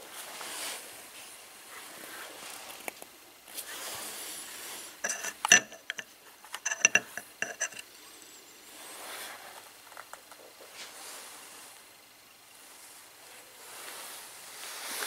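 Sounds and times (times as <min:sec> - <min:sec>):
metal parts clinking: 0:05.0 - 0:07.8
soft handling noise: 0:05.0 - 0:07.9.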